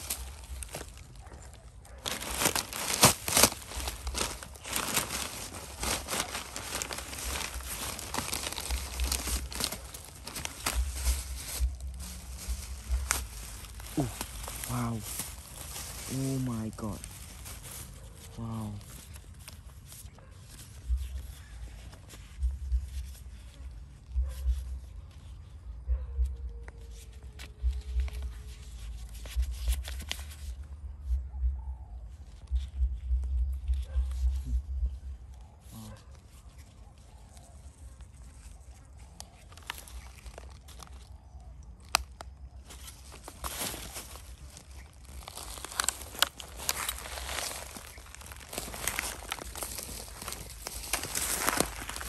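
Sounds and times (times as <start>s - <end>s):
plastic bags rustling: 0.0s - 19.9s, 36.1s - 52.0s
faint crinkling and clicks: 32.3s - 52.0s.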